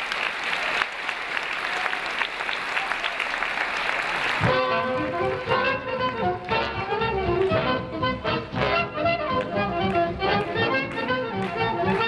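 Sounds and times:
audience applauding: 0.0s - 6.7s, 9.3s - 12.0s
swing band with brass: 4.4s - 12.0s.

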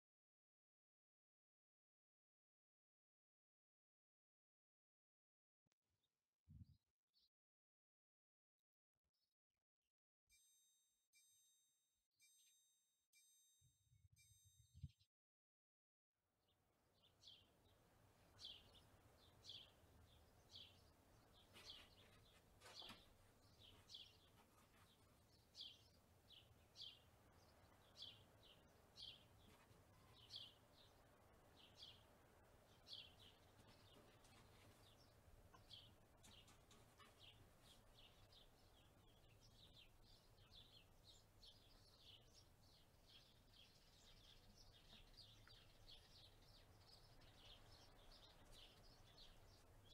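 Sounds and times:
bird chirping: 17.0s - 49.9s.

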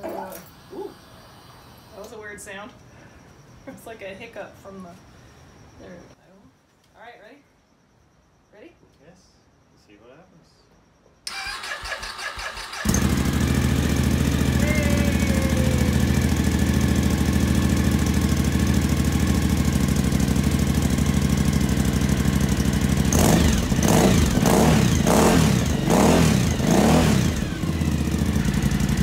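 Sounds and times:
motorcycle engine idling and revving: 11.3s - 29.0s.

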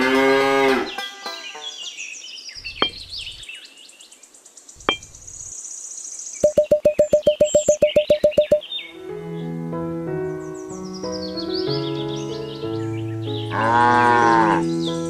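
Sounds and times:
birds chirping: 1.6s - 5.7s, 6.4s - 8.9s
small bricks knocking: 2.6s - 3.4s
short repeated musical notes: 6.4s - 8.6s
cow mooing: 13.5s - 14.7s.

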